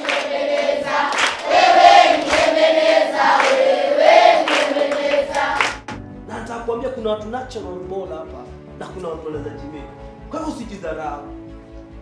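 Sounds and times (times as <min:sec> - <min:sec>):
children singing in unison: 0:00.0 - 0:05.8
hand claps on the beat: 0:00.0 - 0:06.0.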